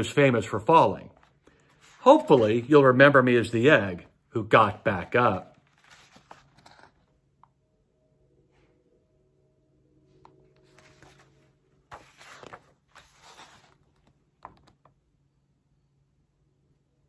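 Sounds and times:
paper pages rustling: 0:01.0 - 0:04.0, 0:04.6 - 0:07.2, 0:10.6 - 0:14.9.

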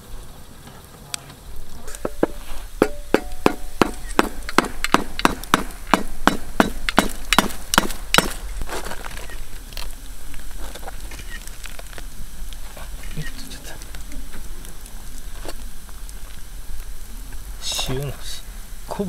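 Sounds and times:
crust crunching: 0:00.0 - 0:18.2
hammer striking salt crust: 0:01.8 - 0:09.2.

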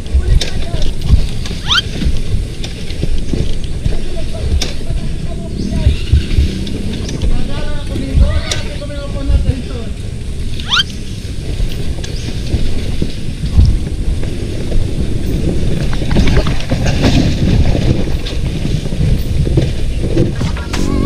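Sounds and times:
dirt bike engine rumble: 0:00.0 - 0:21.0
wind buffeting microphone: 0:00.0 - 0:21.0.

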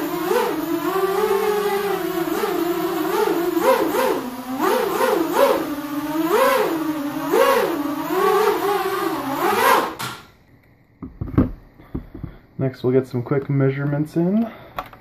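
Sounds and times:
quadcopter motors buzzing: 0:00.0 - 0:10.0.

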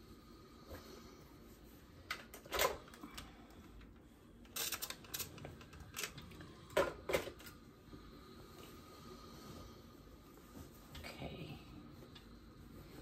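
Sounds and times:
fabric rustling and scraping: 0:08.6 - 0:13.0.

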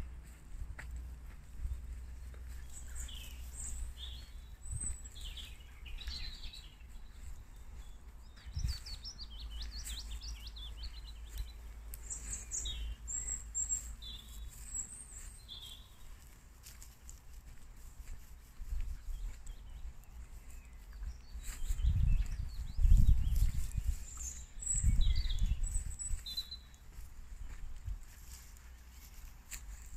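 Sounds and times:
steady low rumble: 0:00.0 - 0:15.4
wild birds singing: 0:00.0 - 0:29.9.

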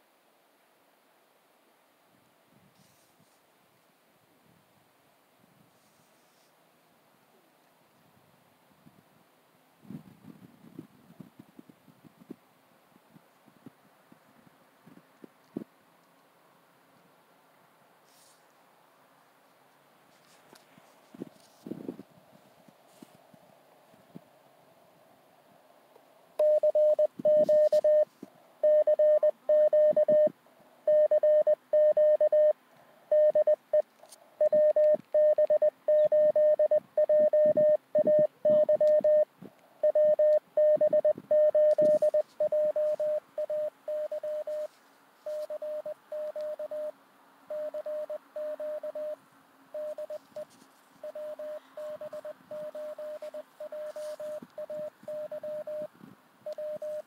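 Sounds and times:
morse code tone: 0:26.4 - 0:30.3, 0:30.9 - 0:33.8, 0:34.4 - 0:44.7, 0:45.3 - 0:46.9, 0:47.5 - 0:57.0.

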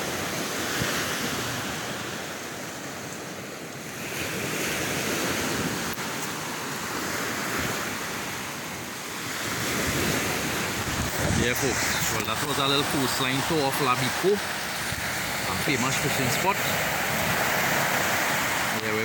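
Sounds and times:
waves washing onto beach: 0:00.0 - 0:19.0
wind on microphone: 0:03.9 - 0:19.0.

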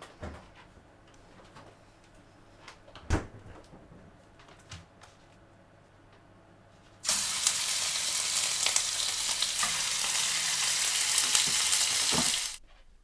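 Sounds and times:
steak sizzling in a frying pan: 0:07.0 - 0:12.6.

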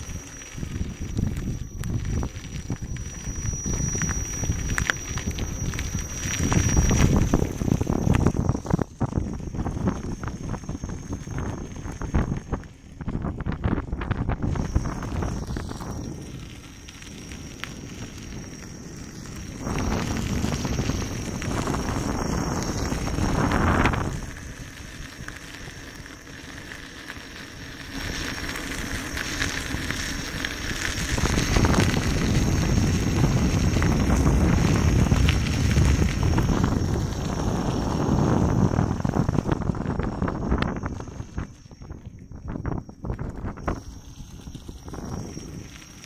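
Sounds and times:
tyre crackling over gravel: 0:00.0 - 0:46.0
wind on microphone: 0:00.0 - 0:46.0.

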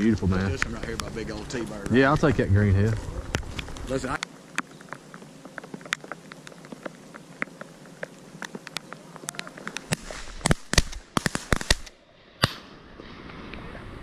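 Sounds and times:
shotgun blasts: 0:09.9 - 0:12.7.

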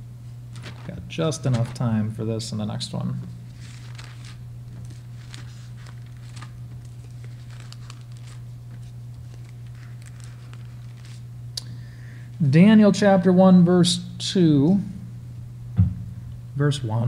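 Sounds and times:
pages turning and rustling: 0:00.5 - 0:01.9, 0:03.5 - 0:11.3.

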